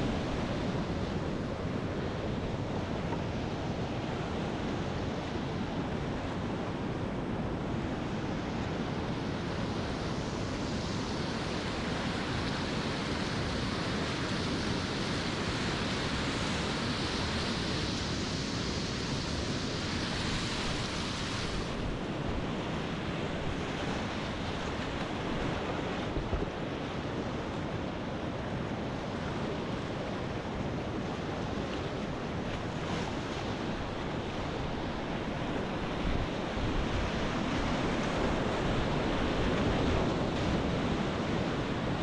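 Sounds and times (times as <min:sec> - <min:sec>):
water rushing over rapids: 0:00.0 - 0:42.0.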